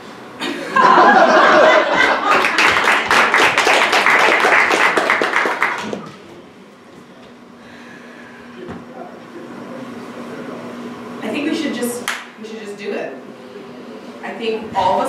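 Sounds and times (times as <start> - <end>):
audience laughter: 0.4 - 3.1
audience applause: 1.0 - 6.2.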